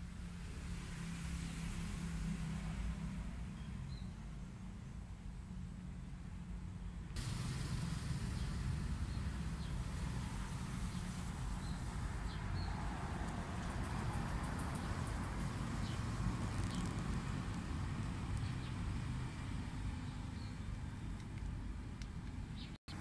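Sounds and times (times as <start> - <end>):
low rumble with hiss: 0.0 - 23.0.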